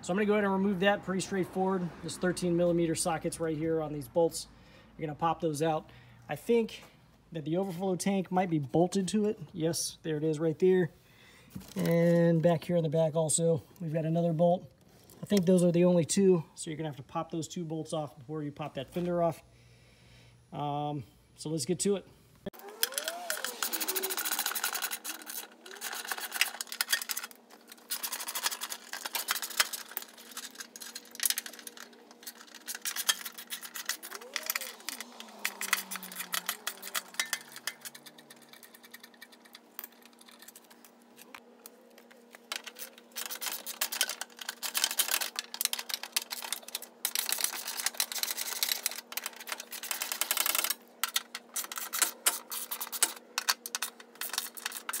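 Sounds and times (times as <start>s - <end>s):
socket ratchet clicking: 27.9s - 39.6s.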